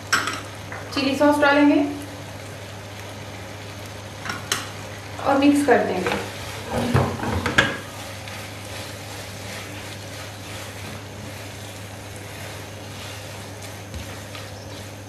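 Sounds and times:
faint sizzle: 0.0s - 15.0s
steady low hum: 0.0s - 15.0s
spatula scraping frying pan: 5.9s - 15.0s.

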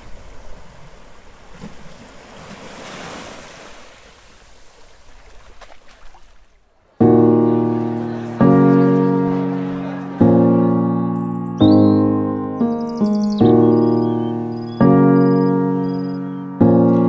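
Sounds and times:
keyboard chord ringing: 7.0s - 17.0s.

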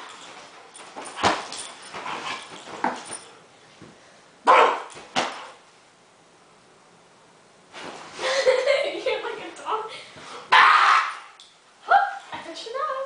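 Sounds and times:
dog barking and yipping: 4.5s - 5.0s.

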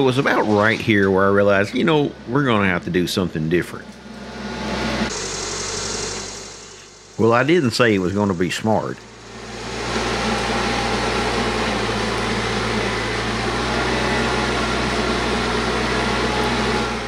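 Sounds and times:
tractor diesel engine running: 0.0s - 17.0s
loader bucket pushing clay: 9.3s - 17.0s.

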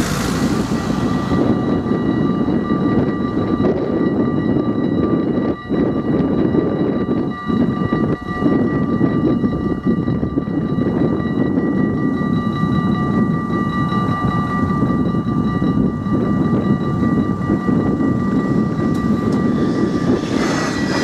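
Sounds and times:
level crossing bells ringing: 0.0s - 21.0s
loud steady rumbling: 0.0s - 21.0s.

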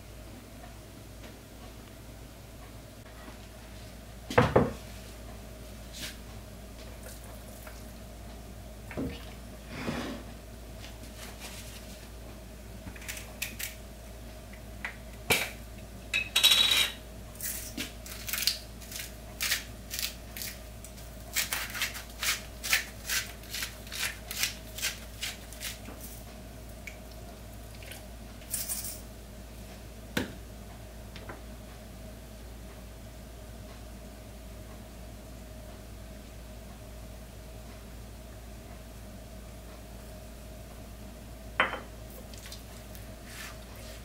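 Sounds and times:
spice grinder crunching: 17.4s - 26.2s.

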